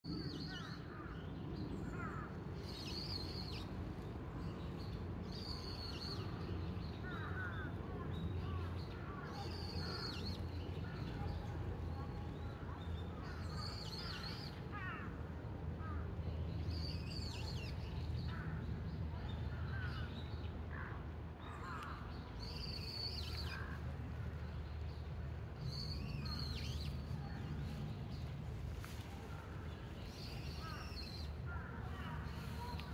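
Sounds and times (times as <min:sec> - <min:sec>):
steady low rumble: 0:00.0 - 0:32.9
birds calling and chirping: 0:19.5 - 0:32.9.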